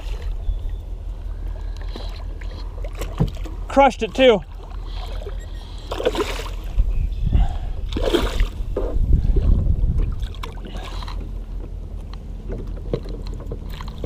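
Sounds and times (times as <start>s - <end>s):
water splashing against kayak: 1.6s - 6.9s, 7.8s - 14.0s
wind on microphone: 6.6s - 10.7s.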